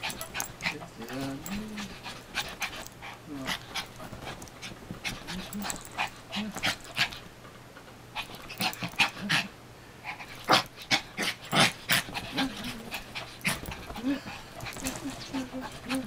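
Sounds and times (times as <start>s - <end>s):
small dog breathy sounds: 8.2s - 16.0s.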